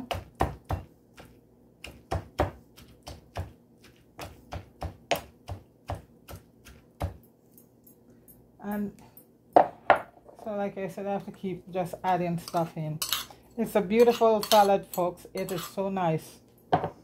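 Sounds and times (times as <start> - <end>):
pestle pounding in mortar: 0.0 - 3.6, 4.2 - 7.2.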